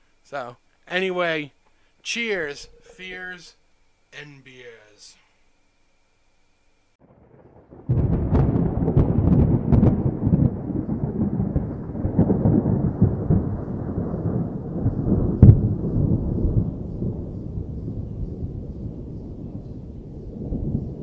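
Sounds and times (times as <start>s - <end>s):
thunder rumbling and cracking: 7.0s - 21.0s.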